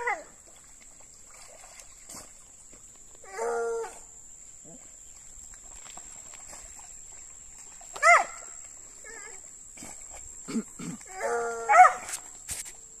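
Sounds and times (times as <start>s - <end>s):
dogs barking and yelping: 3.3s - 4.0s, 8.0s - 9.4s, 11.1s - 12.2s.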